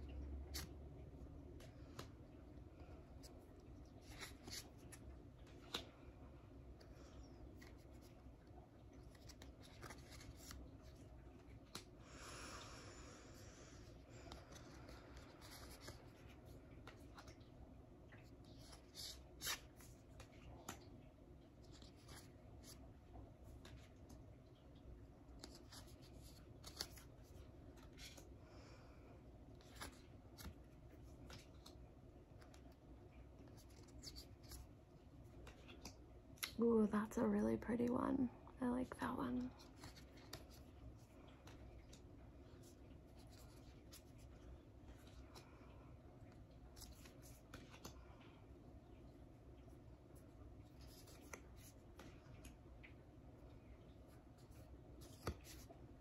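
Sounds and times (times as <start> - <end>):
cards sliding and ticking: 1.6 - 6.0, 6.7 - 12.0, 13.8 - 17.4, 18.2 - 20.9, 21.5 - 24.2, 25.3 - 28.3, 29.6 - 36.6, 39.6 - 45.4, 46.3 - 48.0, 50.2 - 53.0, 54.0 - 55.8
card rustle: 3.1 - 6.0, 6.8 - 11.9, 13.9 - 17.5, 18.2 - 20.9, 21.5 - 22.9, 25.3 - 28.3, 29.6 - 32.8, 33.4 - 36.6, 39.5 - 45.4, 46.6 - 48.0, 50.6 - 52.6, 54.1 - 55.8.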